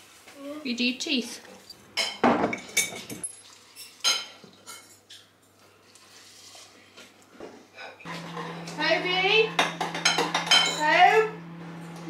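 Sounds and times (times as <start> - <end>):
milk being poured: 3.4 - 4.0
glass lid clinking: 9.6 - 11.0.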